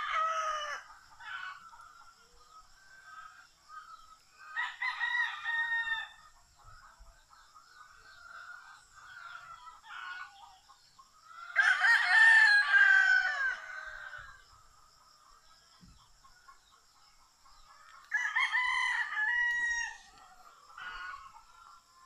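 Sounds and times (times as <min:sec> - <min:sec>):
rooster crowing: 0:00.0 - 0:00.9, 0:04.6 - 0:06.2, 0:11.5 - 0:14.3, 0:18.0 - 0:21.2
fowl calls: 0:17.7 - 0:22.0.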